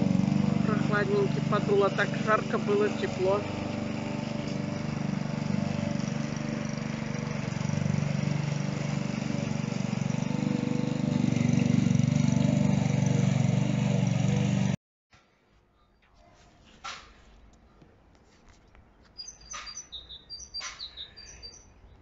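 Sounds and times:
lawn mower running: 0:00.0 - 0:14.8.

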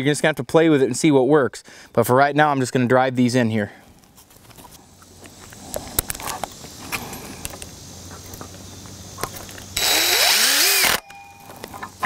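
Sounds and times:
impact driver driving screw: 0:09.8 - 0:11.0.

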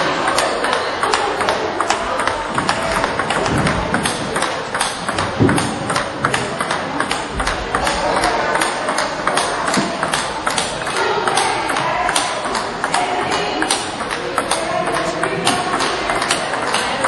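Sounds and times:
table tennis ball clicking: 0:00.1 - 0:17.0.

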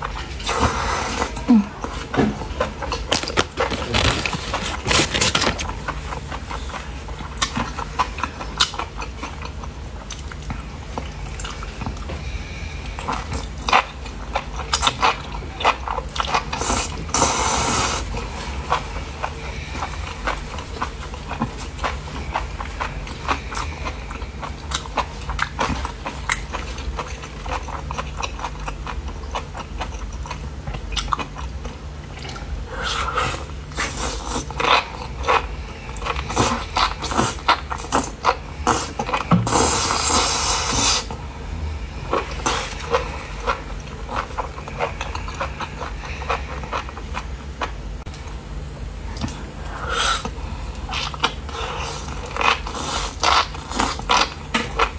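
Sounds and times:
crunchy chewing: 0:00.0 - 0:41.2, 0:42.1 - 0:48.4, 0:49.2 - 0:54.9
low hum: 0:41.1 - 0:52.8.

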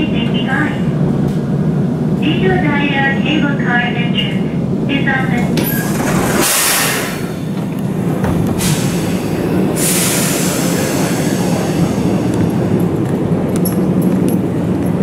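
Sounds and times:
electric train humming: 0:00.0 - 0:15.0
train door sliding open: 0:05.4 - 0:14.6
compressed air hissing: 0:06.0 - 0:07.6, 0:08.6 - 0:12.4.

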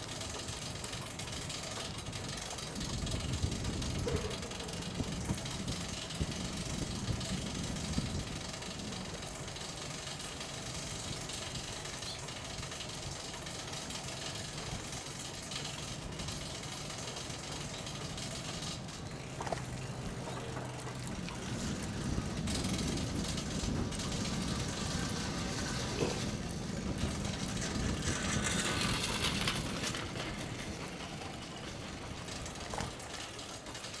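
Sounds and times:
bicycle rattling: 0:00.0 - 0:34.0
bicycle tyres rolling on pavement: 0:00.0 - 0:34.0
low engine hum: 0:02.5 - 0:33.7
wind on microphone: 0:02.8 - 0:09.2, 0:19.3 - 0:32.9.

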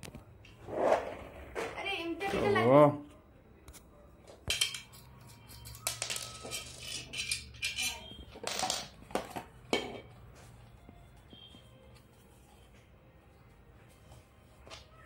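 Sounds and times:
metal screws and nuts clinking: 0:04.5 - 0:09.0.

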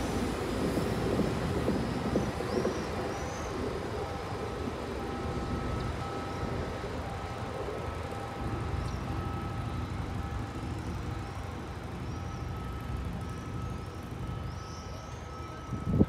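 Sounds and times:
diesel railcar rumbling: 0:00.0 - 0:16.0
street traffic: 0:00.0 - 0:16.0.

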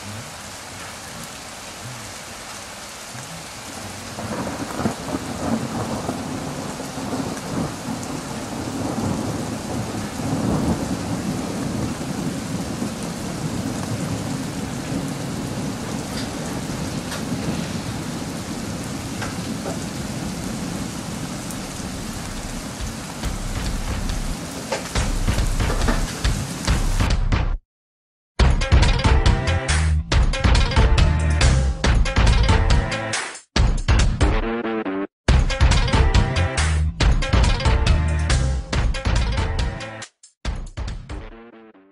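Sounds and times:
heavy rain pouring: 0:00.0 - 0:27.2
thunder rumbling: 0:03.2 - 0:27.1.

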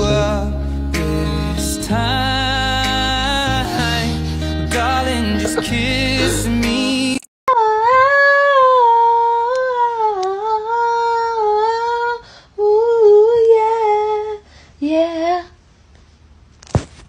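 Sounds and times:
high voice humming: 0:03.4 - 0:11.8.

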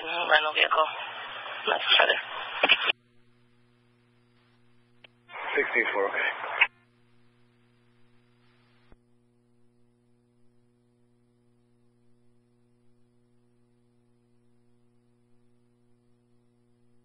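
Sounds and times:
radio noise hiss: 0:00.0 - 0:09.0
faint electrical hum: 0:00.0 - 0:17.0
radio click: 0:01.4 - 0:03.1.

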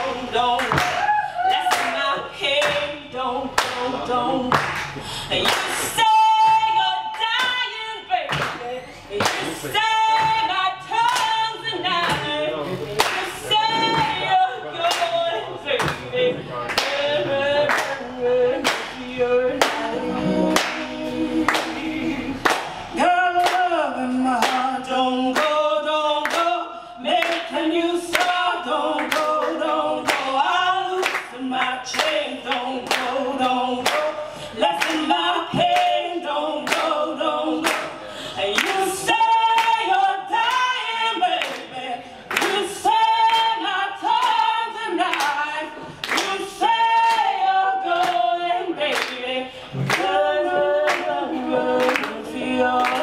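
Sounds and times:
women singing a cappella: 0:00.0 - 0:53.0
hand claps: 0:04.5 - 0:05.8, 0:08.3 - 0:08.6, 0:09.2 - 0:09.5, 0:13.0 - 0:13.2, 0:15.8 - 0:16.1, 0:16.7 - 0:17.1, 0:20.6 - 0:20.9, 0:22.4 - 0:22.8, 0:24.4 - 0:24.7, 0:31.0 - 0:31.3, 0:36.6 - 0:36.9, 0:37.6 - 0:38.0, 0:42.3 - 0:42.6, 0:45.1 - 0:45.4, 0:46.0 - 0:46.4, 0:47.0 - 0:47.3, 0:48.9 - 0:49.2, 0:49.8 - 0:50.2, 0:50.9 - 0:51.1, 0:51.8 - 0:52.2, 0:52.8 - 0:53.0.

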